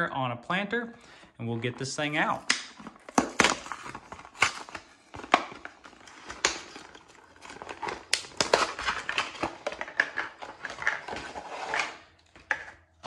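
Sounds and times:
plastic blister pack crinkling: 1.6 - 11.4
sharp plastic snaps: 2.4 - 3.6.

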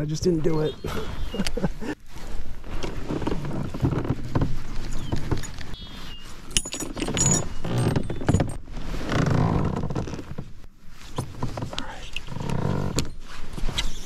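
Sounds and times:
fishing reel and rod rattling: 4.7 - 8.6
metallic jingles of reel and lure: 4.8 - 8.3.

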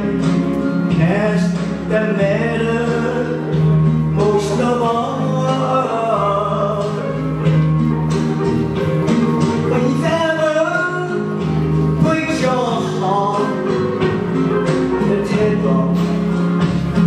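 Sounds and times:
man singing karaoke: 0.0 - 7.6, 9.3 - 17.0
recorded backing track: 0.0 - 17.0.

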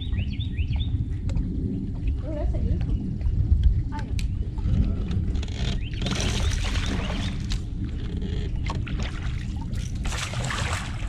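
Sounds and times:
fish splashing at water surface: 8.8 - 11.0.

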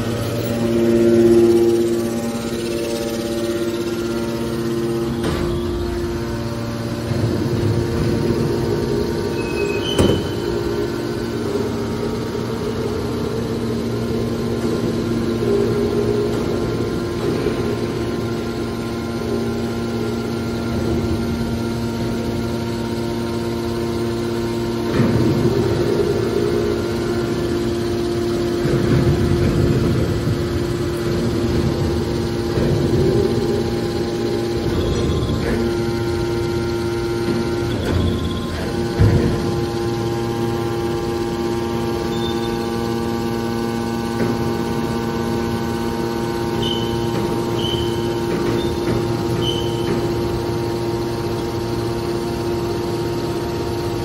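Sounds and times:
baler motors humming: 0.0 - 54.0.

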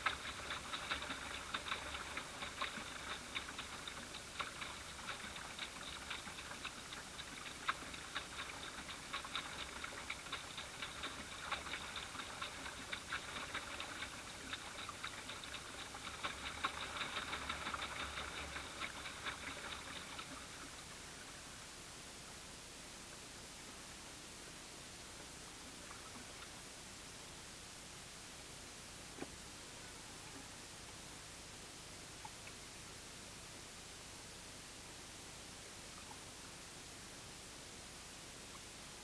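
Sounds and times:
ripples lapping against boat hull: 0.0 - 20.9
steady hiss: 0.0 - 39.0.

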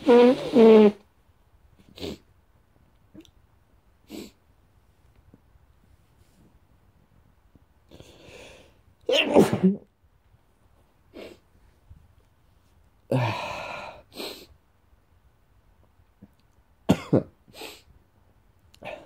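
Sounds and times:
man sniffing: 4.1 - 4.4, 11.1 - 11.5, 13.2 - 14.6, 17.5 - 17.9
man sneezing: 9.1 - 9.8.

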